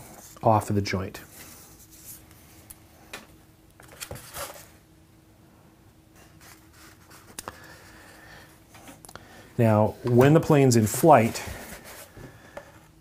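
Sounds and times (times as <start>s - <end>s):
hands rustling foam board: 10.0s - 13.0s.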